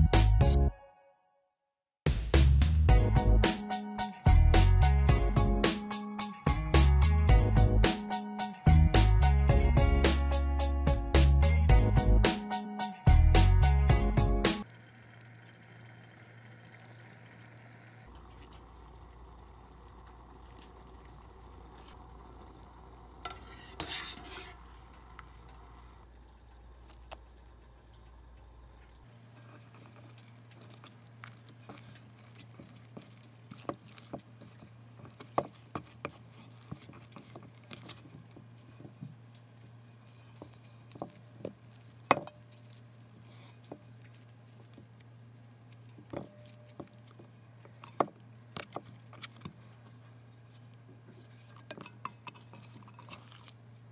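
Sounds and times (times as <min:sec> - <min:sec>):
pot of water boiling: 0:14.6 - 0:53.9
hands kneading dough in metal bowl: 0:18.0 - 0:26.0, 0:28.9 - 0:53.9
fingers knocking and scraping metal: 0:29.1 - 0:45.0, 0:45.6 - 0:53.6.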